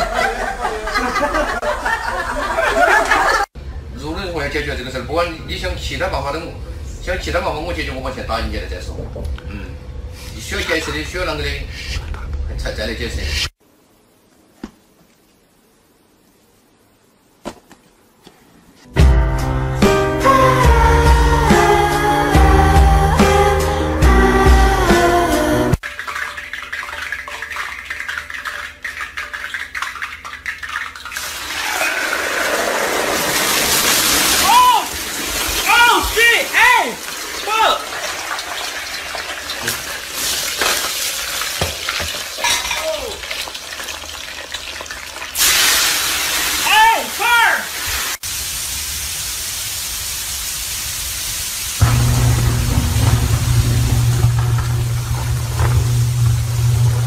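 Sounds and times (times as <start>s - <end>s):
hot oil popping and crackling: 25.8s - 36.2s, 37.0s - 46.7s, 47.8s - 57.0s
fries sizzling in oil: 25.8s - 57.0s
heavy rain pouring: 31.4s - 38.6s, 51.7s - 57.0s
low rumble: 51.8s - 57.0s.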